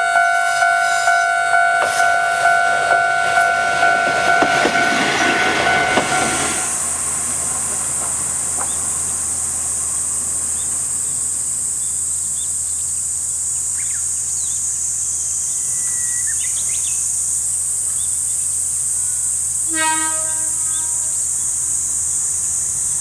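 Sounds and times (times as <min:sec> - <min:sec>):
steady high tone: 0:00.0 - 0:07.4
insects droning: 0:00.0 - 0:23.0
train wheels clacking over rail joints: 0:01.8 - 0:11.3.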